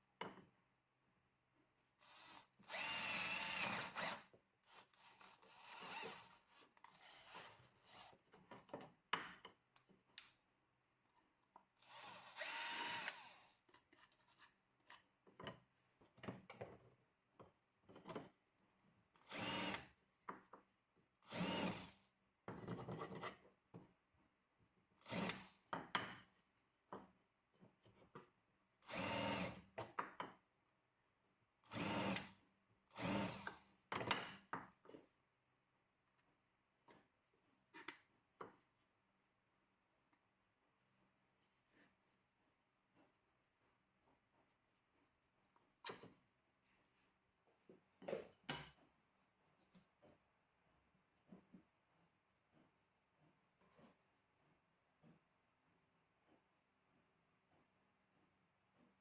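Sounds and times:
cordless drill boring wood: 2.0 - 8.3, 11.8 - 13.6, 19.3 - 19.9, 21.3 - 22.0, 25.0 - 25.6, 28.9 - 29.7, 31.7 - 33.7.

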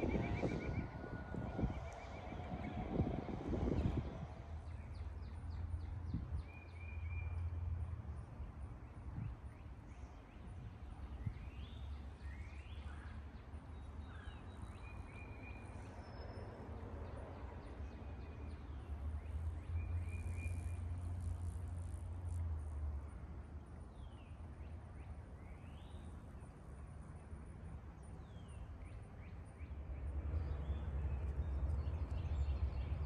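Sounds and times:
steady low rumble: 0.0 - 6.4.

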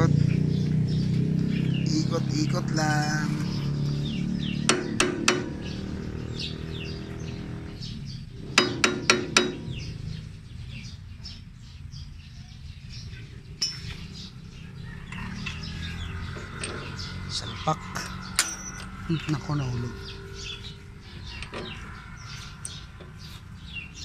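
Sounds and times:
small birds chirping: 0.0 - 24.0
dull hammer knock: 4.7 - 5.6.

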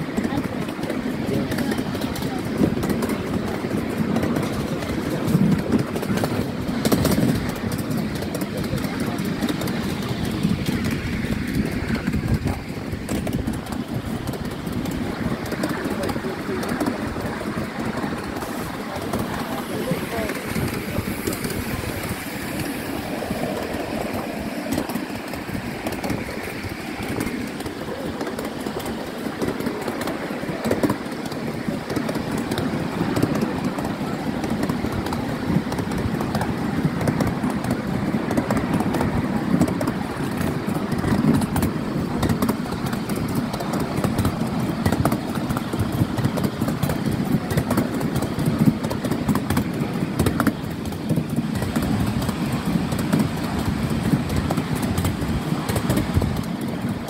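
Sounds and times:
quick rail clicks: 0.0 - 57.0
train wheels rumbling on rails: 0.0 - 57.0.

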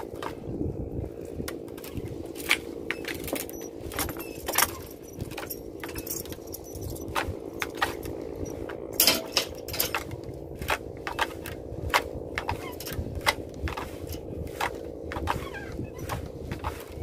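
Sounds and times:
small engine running: 0.0 - 17.0
sharp clinks and clatters: 2.9 - 10.2, 12.4 - 14.2.

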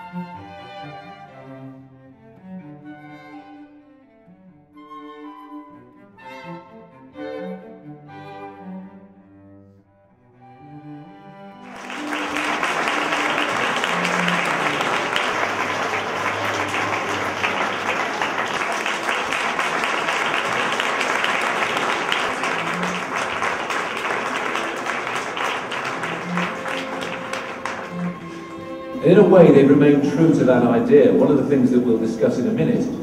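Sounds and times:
bowed string music: 0.0 - 33.0
audience applauding: 11.6 - 33.0
background music low notes: 26.4 - 33.0.

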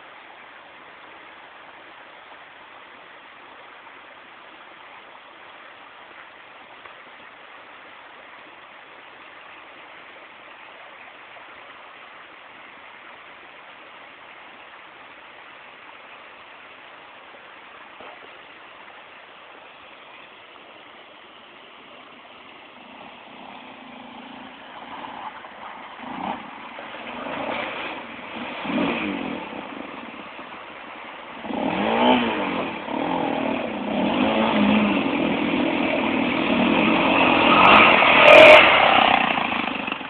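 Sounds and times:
quad engine revving: 26.0 - 30.2, 31.4 - 40.0.

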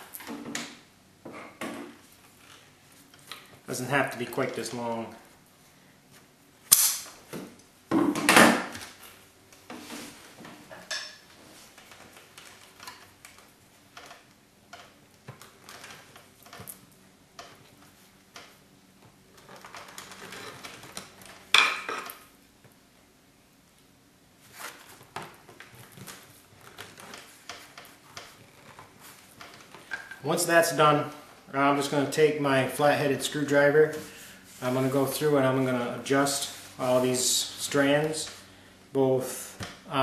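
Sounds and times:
clicks and rustles on rush seat: 24.4 - 30.4.

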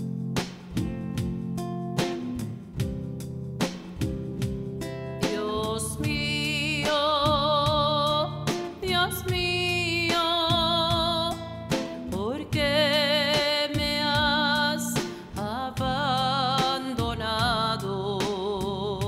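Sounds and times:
strummed acoustic guitar: 0.0 - 19.0
woman singing with vibrato: 5.2 - 19.0.

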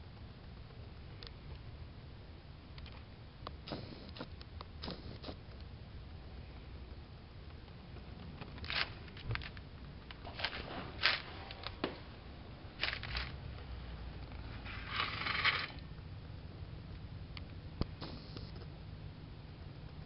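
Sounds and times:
metal scraping: 10.2 - 11.8, 14.5 - 15.8.

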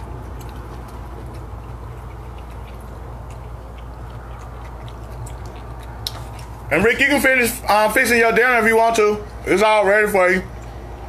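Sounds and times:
person chewing: 0.0 - 9.5
steady low hum: 0.0 - 11.0.

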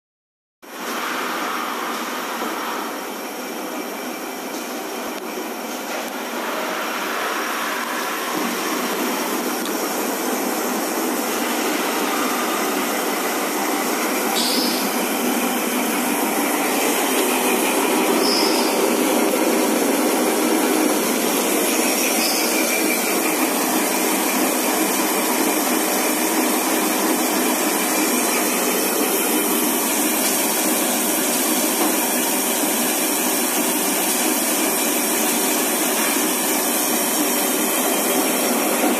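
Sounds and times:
knitting machine running: 7.8 - 38.9.

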